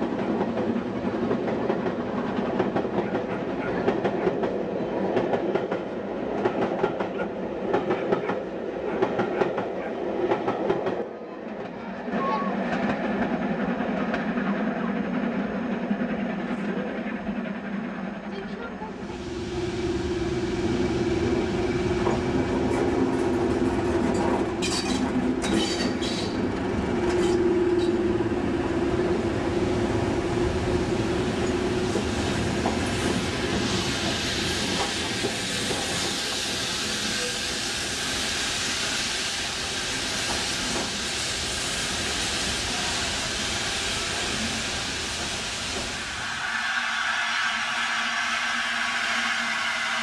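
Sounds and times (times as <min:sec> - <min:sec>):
diesel locomotive engine drone: 0:00.0 - 0:50.0
steam hissing: 0:19.0 - 0:28.2, 0:29.1 - 0:50.0.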